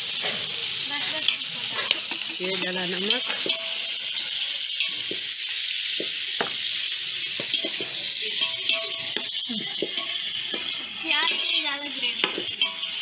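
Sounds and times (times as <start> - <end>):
chicken sizzling in a metal pot: 0.0 - 13.0
spoon scraping a pot: 7.4 - 11.6, 12.4 - 13.0.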